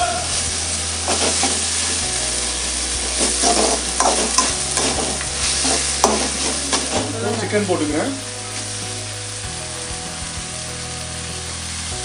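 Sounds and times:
vegetables sizzling in oil: 0.0s - 12.0s
metal spatula scraping pan: 1.1s - 1.9s, 3.0s - 7.5s.

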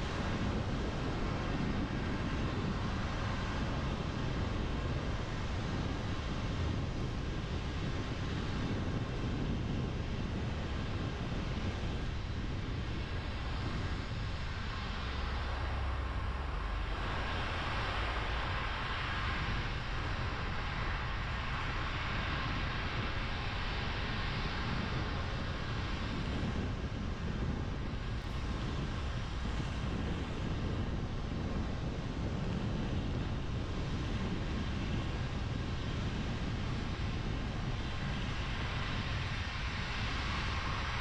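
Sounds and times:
car engine and tyres rumbling: 0.0s - 41.0s.

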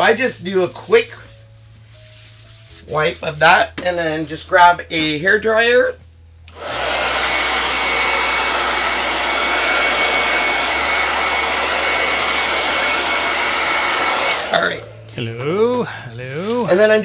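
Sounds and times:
hair dryer blowing: 6.5s - 14.9s.

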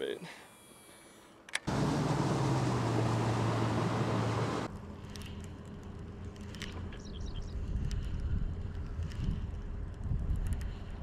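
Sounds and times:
outboard motor running: 1.7s - 4.7s
wind and water rushing: 1.7s - 4.7s
faint clicks: 7.8s - 10.9s.

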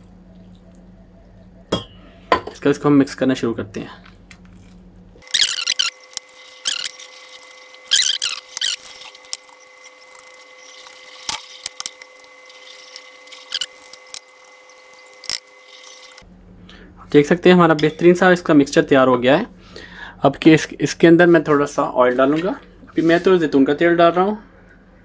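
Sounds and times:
whisk scraping bowl: 5.2s - 16.2s.

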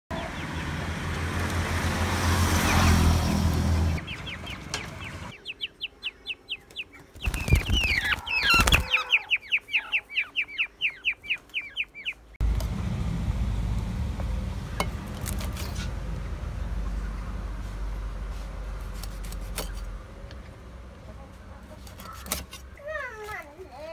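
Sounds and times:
quails chirping in distress: 4.0s - 12.4s
wings flapping: 7.0s - 9.4s
low hum: 12.4s - 21.6s.

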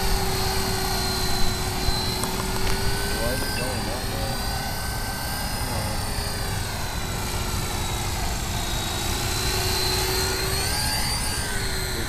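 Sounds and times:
rc helicopter whine: 0.0s - 12.0s.

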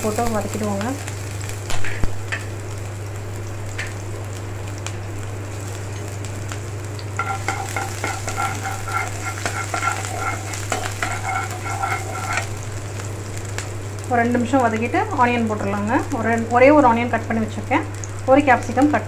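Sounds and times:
garlic sizzling in hot oil: 0.0s - 19.0s
metal spatula scraping pan: 7.2s - 12.6s.

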